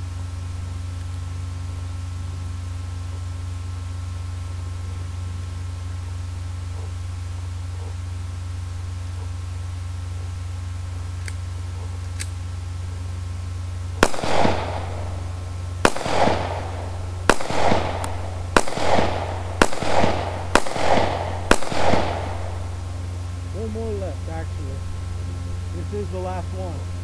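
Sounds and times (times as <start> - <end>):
pistol shots with echo: 14.0 - 23.0.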